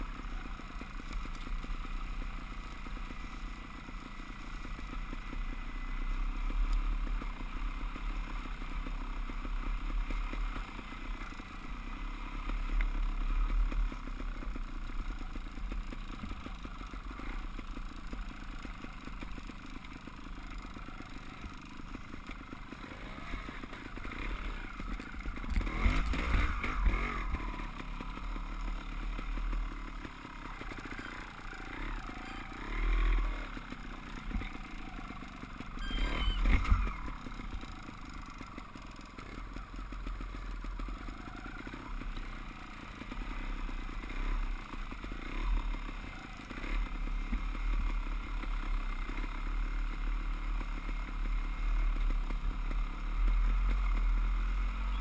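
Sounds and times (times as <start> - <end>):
dirt bike engine revving: 20.5 - 55.0.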